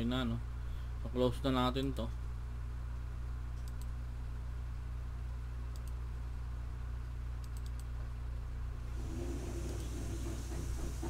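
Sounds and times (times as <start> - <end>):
low electrical hum: 0.0 - 11.0
computer mouse clicks: 3.6 - 4.0, 5.7 - 6.0, 7.4 - 7.9.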